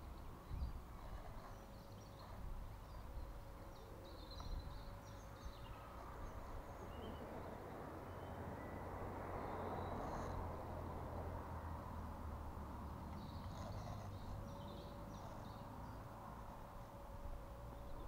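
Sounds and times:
wind rumble on microphone: 0.0 - 7.8
faint steady hum: 0.0 - 18.0
small birds chirping: 0.0 - 18.0.

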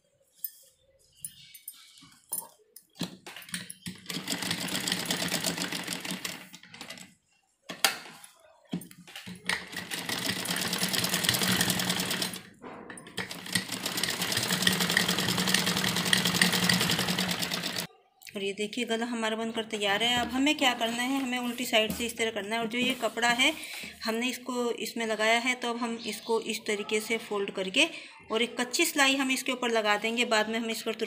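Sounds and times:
sewing machine stitching: 3.4 - 7.1, 9.1 - 12.5, 13.2 - 17.9.

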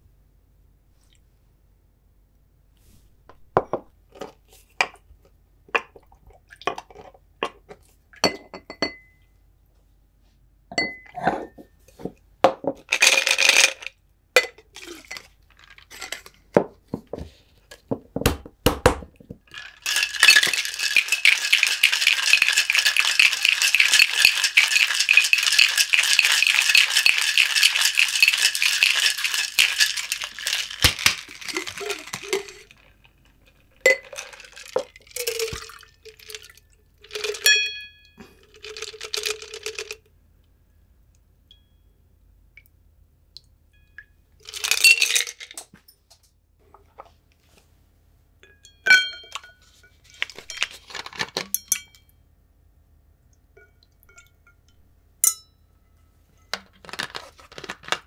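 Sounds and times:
ice rattling in a shaker: 12.8 - 14.0, 14.6 - 16.4, 19.5 - 37.6, 38.3 - 40.0, 44.4 - 45.6, 49.3 - 51.5
muddler grinding in a glass: 19.5 - 32.8.

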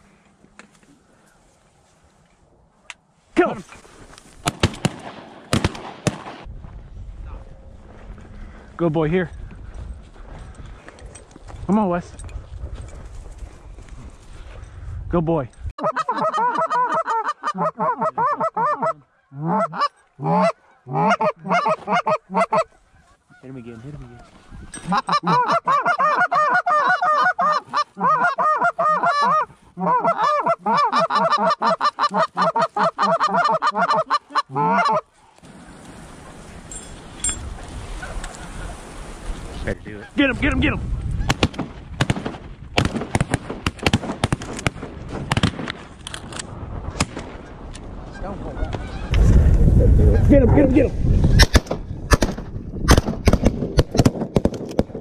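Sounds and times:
shotgun blasts: 4.4 - 6.5, 41.3 - 45.9, 51.4 - 55.0
goose honking and clucking: 15.8 - 35.1, 48.1 - 49.2.

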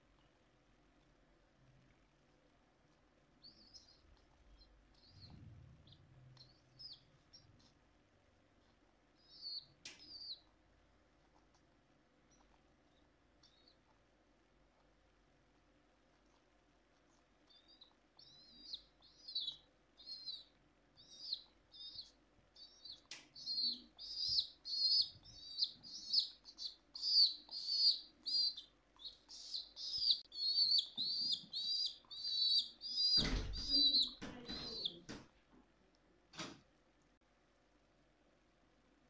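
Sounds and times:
baby pigeon cheeping: 3.4 - 7.8, 8.6 - 10.6, 12.3 - 13.9, 17.4 - 35.2.

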